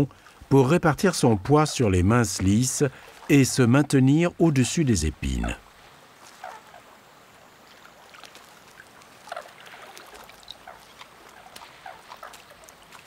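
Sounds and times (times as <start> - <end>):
small feet pattering in water: 7.5 - 13.0.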